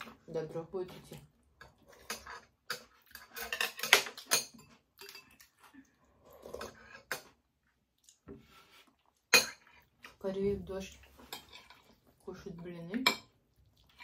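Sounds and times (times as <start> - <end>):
utensils clinking on dishes: 1.2 - 5.6, 9.3 - 9.7.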